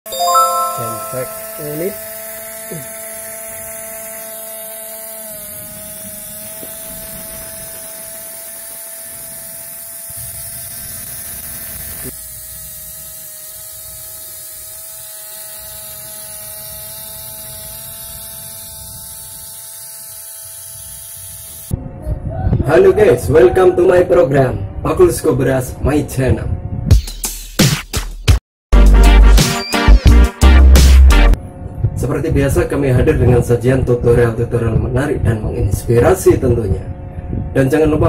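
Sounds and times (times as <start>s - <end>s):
small electric motor whining: 1.6s - 21.8s.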